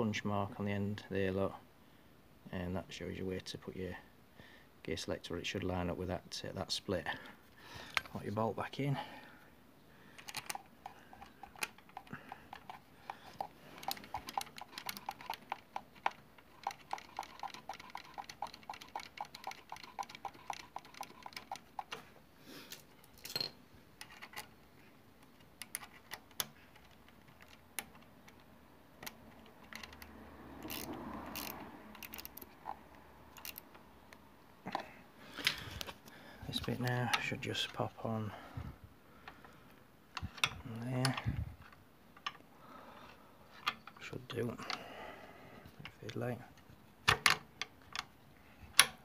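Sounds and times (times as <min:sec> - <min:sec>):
socket ratchet clicking: 0:10.2 - 0:22.0, 0:27.3 - 0:34.2
tools knocking and handling: 0:23.1 - 0:24.4.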